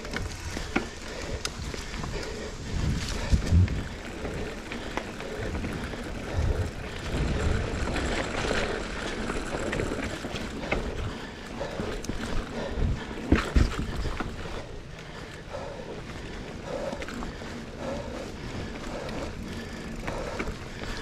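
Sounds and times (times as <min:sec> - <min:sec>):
bike thumps and rattles: 0:00.0 - 0:14.6
bike tyres rumbling over dirt: 0:00.0 - 0:21.0.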